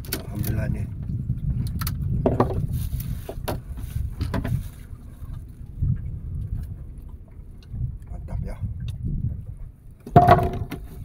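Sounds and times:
wind and water rumble: 0:00.0 - 0:11.0
knocks handling fish on deck: 0:02.2 - 0:04.8, 0:10.0 - 0:11.0.

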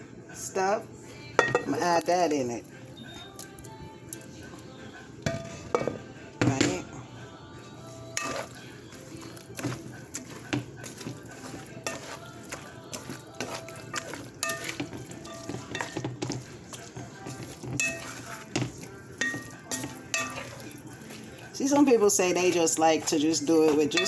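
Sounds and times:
wooden spatula stirring sauce: 0:07.8 - 0:24.0
spatula knocking and scraping pan: 0:08.2 - 0:24.0.

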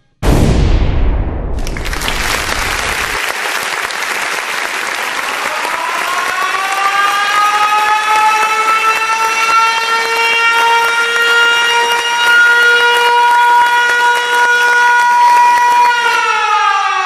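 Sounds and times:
loud low boom: 0:00.2 - 0:03.3
crowd applauding and cheering: 0:01.6 - 0:16.4.

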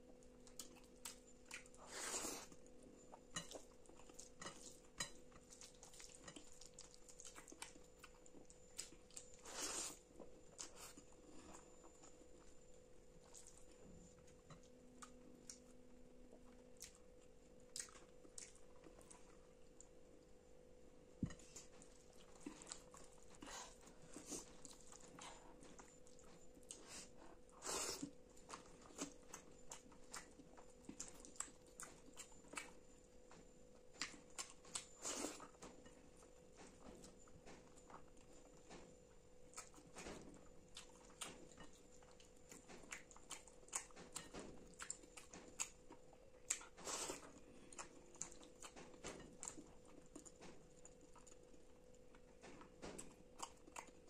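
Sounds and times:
faint steady hum: 0:00.0 - 0:54.0
wet squishing of food: 0:03.3 - 0:12.6
chewing and lip smacks: 0:33.9 - 0:35.6, 0:39.5 - 0:54.0.

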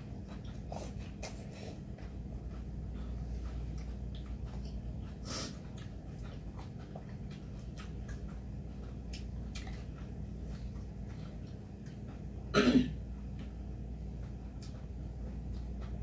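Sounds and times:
loud cough: 0:12.6 - 0:13.0.

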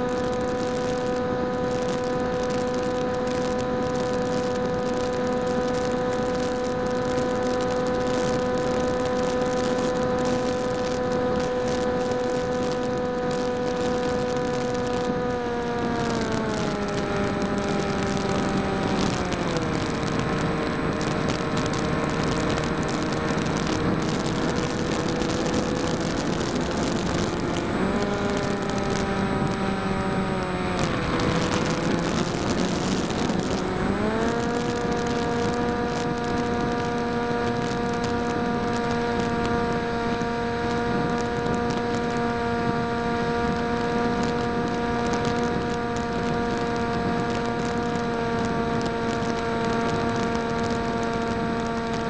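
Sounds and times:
electric motor and propeller whining: 0:00.0 - 0:52.0.

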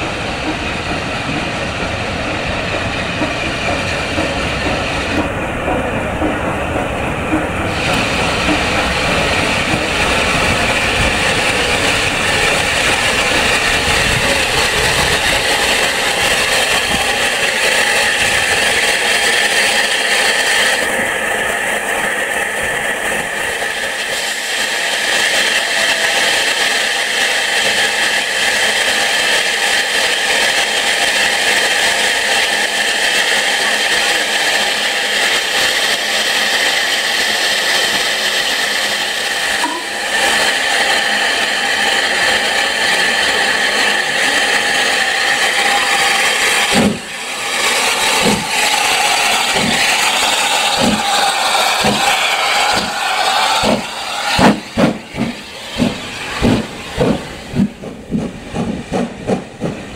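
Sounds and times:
deep locomotive rumble: 0:00.0 - 0:59.9
steam locomotive rushing steam: 0:00.0 - 0:59.9.

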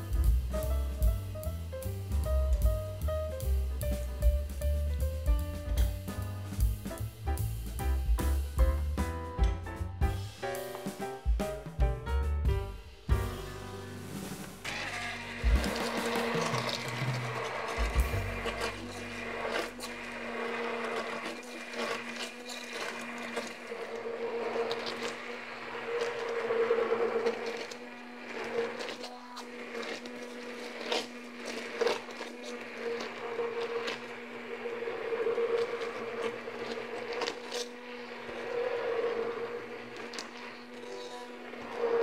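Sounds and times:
immersion blender motor hum: 0:14.2 - 0:42.0.

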